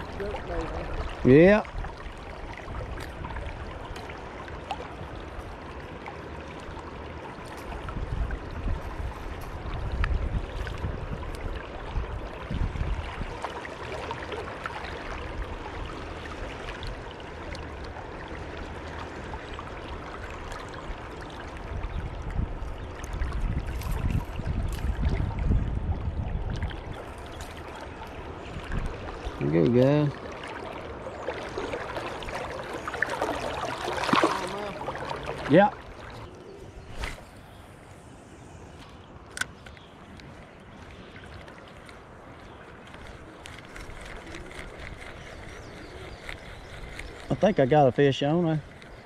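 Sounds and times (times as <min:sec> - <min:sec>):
river water rushing: 0:00.0 - 0:09.9, 0:26.7 - 0:37.1.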